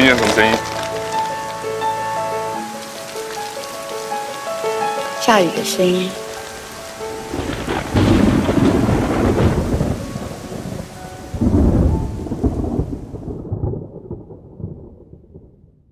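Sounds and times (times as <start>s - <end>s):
steady rain: 0.0s - 15.4s
rolls of thunder: 7.3s - 15.9s.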